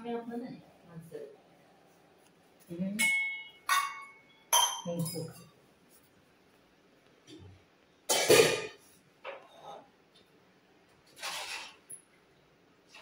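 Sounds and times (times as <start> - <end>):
sharp clinks of hard objects: 3.0 - 5.5.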